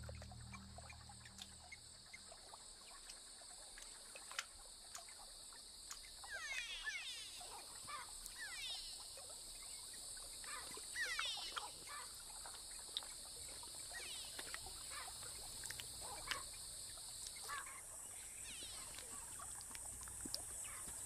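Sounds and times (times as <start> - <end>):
insects chirring: 0.0 - 21.0
bird chirps: 6.2 - 9.0, 10.5 - 12.1, 13.9 - 15.1, 17.4 - 19.2
descending trilled bird calls: 6.2 - 9.0, 10.4 - 12.1, 17.4 - 19.2.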